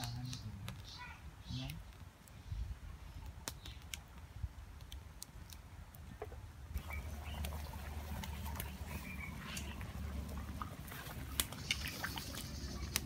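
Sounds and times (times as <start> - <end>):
wood fire crackling: 0.0 - 13.0
broth boiling and bubbling: 4.8 - 13.0.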